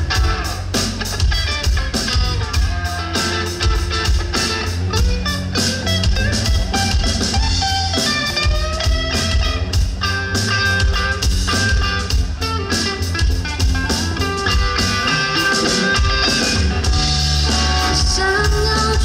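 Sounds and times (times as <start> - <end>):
bass: 0.0 - 19.0
drum kit: 0.0 - 19.0
guitar melody: 0.0 - 19.0.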